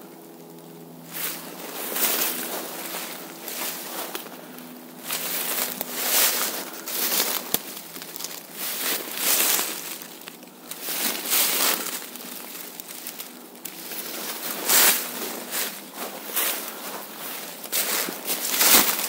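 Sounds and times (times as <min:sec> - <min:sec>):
footsteps crunching dry leaves: 0:00.0 - 0:19.0.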